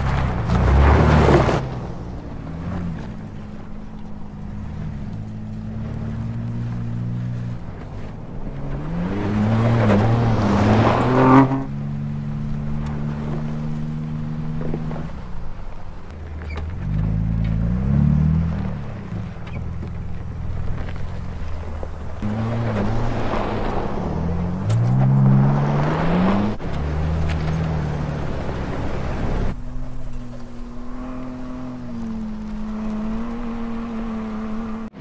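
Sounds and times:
tyres throwing dirt: 0.0s - 35.0s
engine revving hard: 22.2s - 29.6s.

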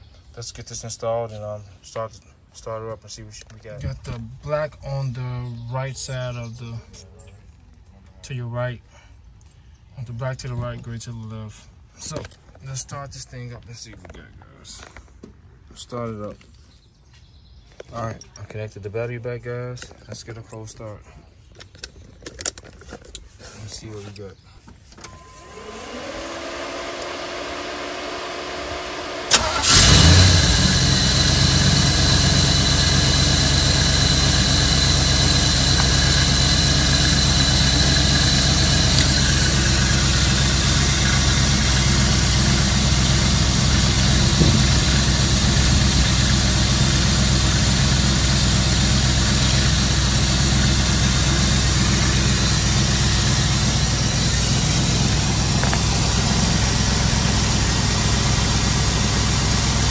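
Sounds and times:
car engine cranking with whine: 25.0s - 59.9s
car engine idling: 25.6s - 59.9s
engine starting with sharp click: 29.3s - 31.1s.

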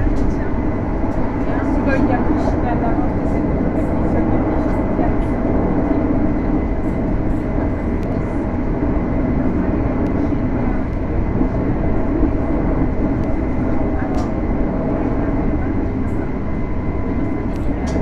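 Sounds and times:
train wheels rumbling on track: 0.0s - 18.0s.

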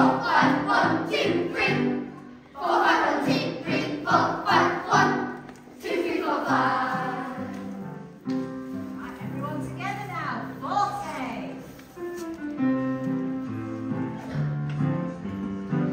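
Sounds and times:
children singing: 0.0s - 7.8s
music: 0.0s - 15.9s.

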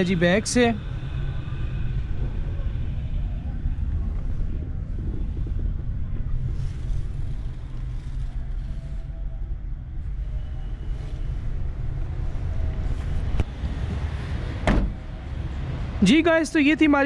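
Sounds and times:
road traffic rumble: 0.0s - 17.0s.

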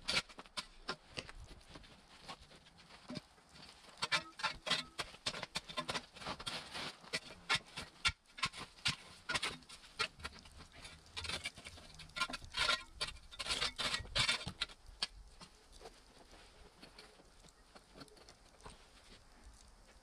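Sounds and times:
shovel digging stony soil: 0.0s - 15.7s.

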